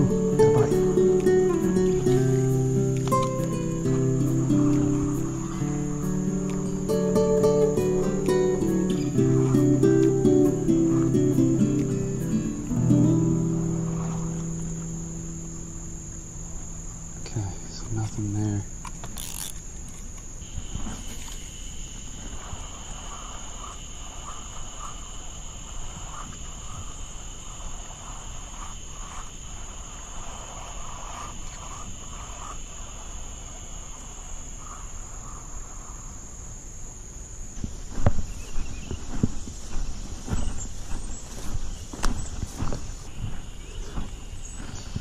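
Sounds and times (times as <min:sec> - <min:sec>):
footsteps through grass: 0:00.0 - 0:17.2, 0:37.5 - 0:45.0
insects droning: 0:00.0 - 0:45.0.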